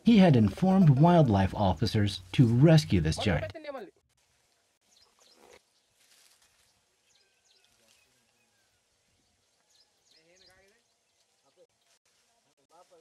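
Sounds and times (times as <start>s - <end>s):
faint high bird chirps: 6.2s - 11.6s.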